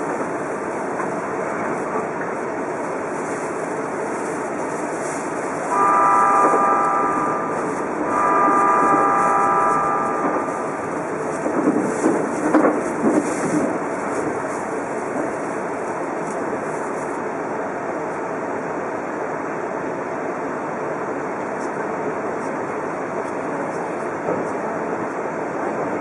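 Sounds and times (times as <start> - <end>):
electric train running: 0.0 - 18.1
train horn blasts: 5.6 - 11.5.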